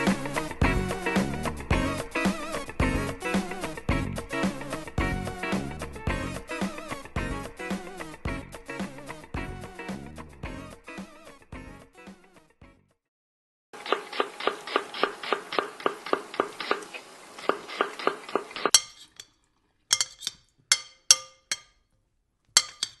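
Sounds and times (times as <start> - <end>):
utensil clinking on glass: 18.6 - 21.8, 22.6 - 23.0.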